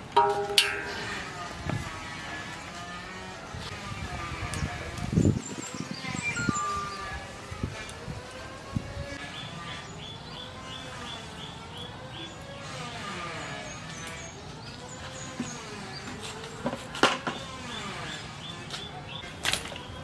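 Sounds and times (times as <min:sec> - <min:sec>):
sharp knocks: 0:00.0 - 0:01.2
birds chirping: 0:00.0 - 0:07.9, 0:08.6 - 0:20.0
wavering melodic sound: 0:06.0 - 0:07.6.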